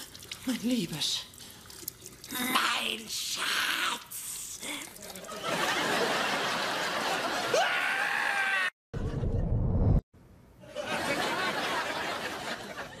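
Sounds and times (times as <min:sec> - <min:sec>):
studio audience laughter: 0:05.3 - 0:07.5, 0:10.7 - 0:13.0
man screaming: 0:07.5 - 0:08.8.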